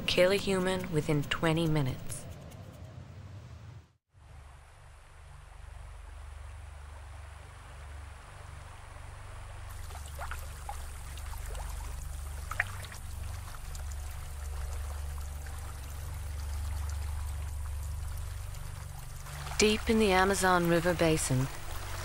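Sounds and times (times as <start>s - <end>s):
steady low rumble: 0.0s - 22.0s
stream water flowing and trickling: 4.2s - 22.0s
small water splashes: 9.6s - 22.0s.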